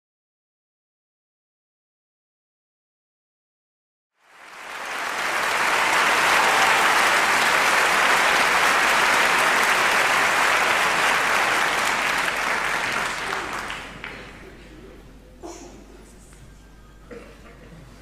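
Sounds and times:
audience applauding: 4.2 - 14.4.

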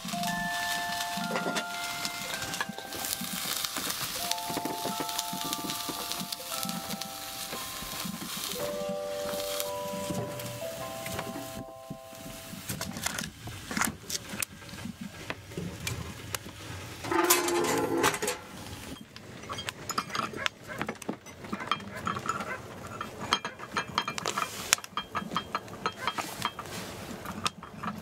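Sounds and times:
pots and utensils clinking: 0.0 - 13.3, 17.0 - 28.0
plastic bag rustling: 0.0 - 15.0.

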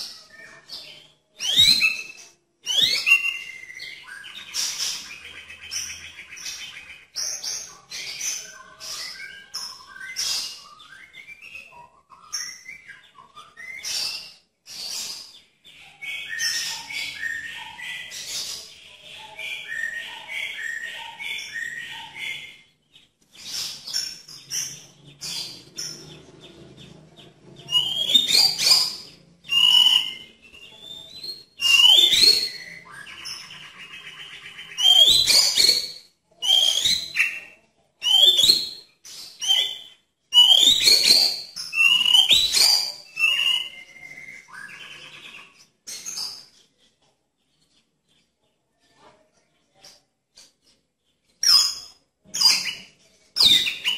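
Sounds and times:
bird singing whistled phrases: 0.0 - 18.7, 19.3 - 22.6, 27.6 - 45.6, 51.4 - 53.9.

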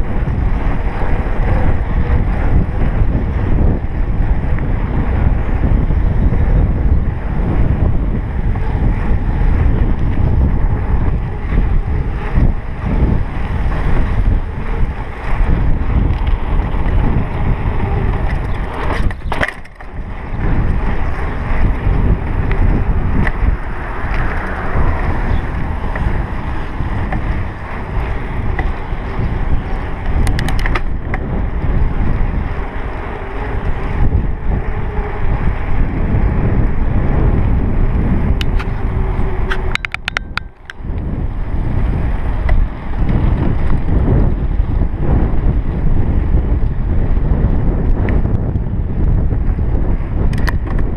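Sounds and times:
wind buffeting microphone: 0.0 - 50.9
run of clicks: 16.0 - 17.4, 18.0 - 20.0, 23.2 - 24.8, 28.0 - 28.9, 29.8 - 31.3, 38.4 - 41.1, 42.4 - 43.9, 50.2 - 50.9.

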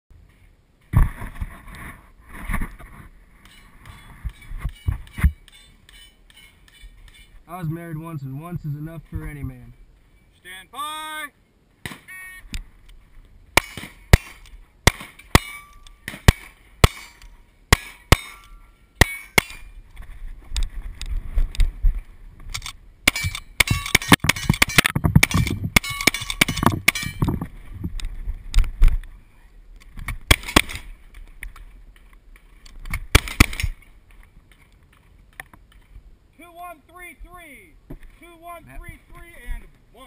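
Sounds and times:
shotgun shots: 13.6 - 18.4, 30.2 - 30.9, 33.1 - 33.8.

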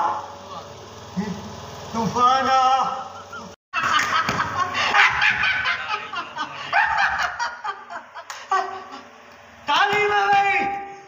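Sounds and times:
people laughing: 3.1 - 9.3.

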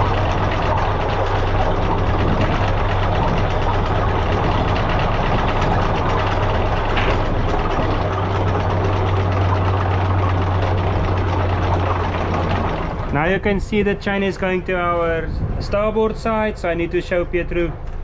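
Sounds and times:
anchor chain rattling: 0.0 - 13.2
windlass motor hum: 0.0 - 18.0.

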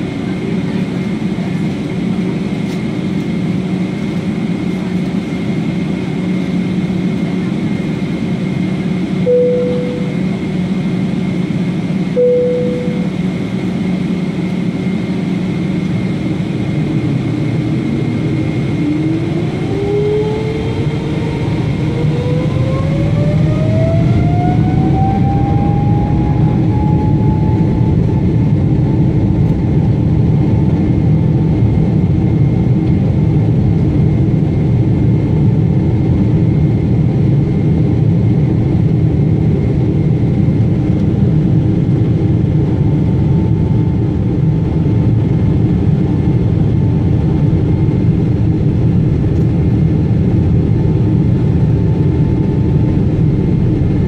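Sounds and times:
jet engines spooling up: 0.1 - 33.0.

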